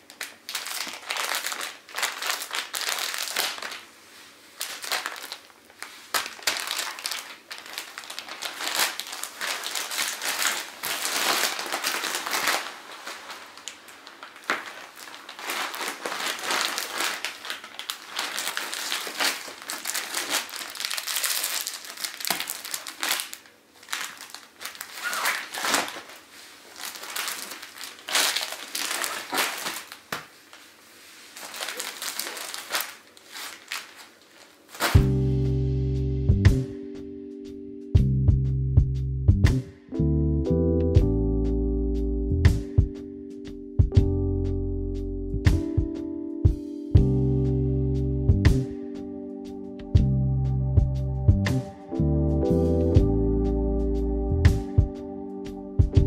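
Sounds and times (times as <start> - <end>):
plastic bag crinkling and rustling: 0.0 - 35.2.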